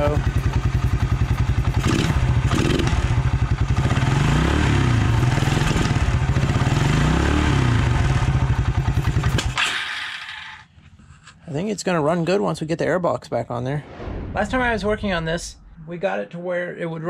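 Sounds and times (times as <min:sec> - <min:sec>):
quad bike engine idling and revving: 0:00.0 - 0:10.6.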